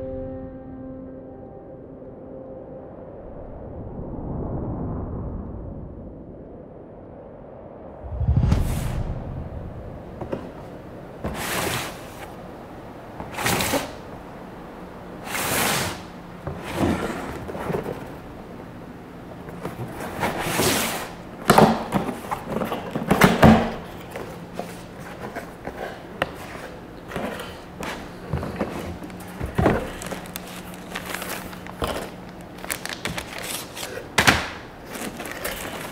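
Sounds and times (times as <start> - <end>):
cardboard box scraping on table: 11.2 - 12.3, 15.3 - 18.1, 19.9 - 21.1
cardboard cracks and knocks: 28.5 - 35.9.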